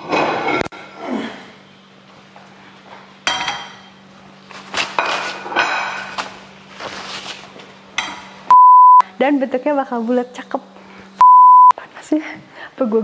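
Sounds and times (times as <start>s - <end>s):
high bleep tone: 8.5s - 9.0s, 11.2s - 11.7s.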